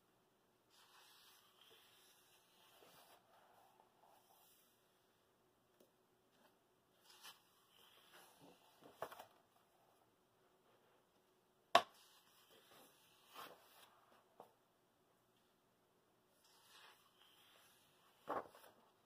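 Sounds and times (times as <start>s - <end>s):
book pages turning: 6.4s - 9.4s, 16.4s - 18.9s.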